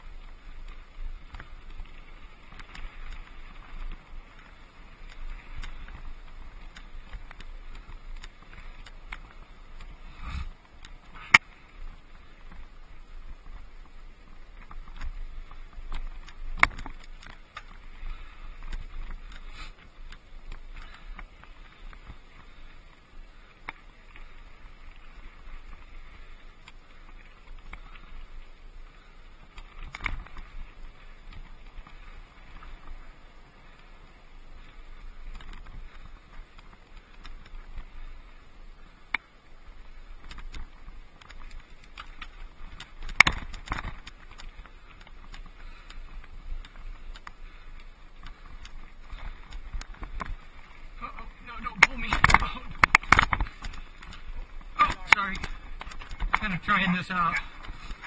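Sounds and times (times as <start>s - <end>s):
bike rattling: 0.0s - 58.0s
tyres crunching on gravel: 39.5s - 58.0s
bike knocking on rocks: 40.2s - 46.0s, 51.6s - 56.7s.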